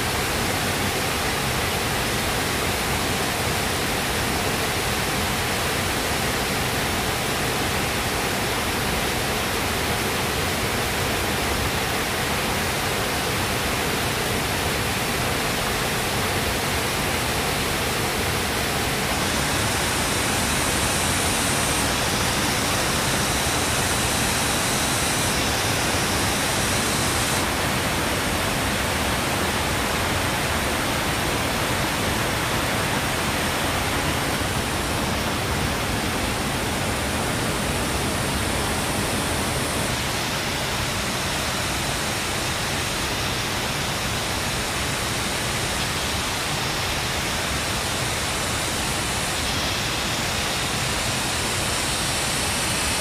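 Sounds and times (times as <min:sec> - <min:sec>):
loud rushing noise: 0:17.2 - 0:45.2.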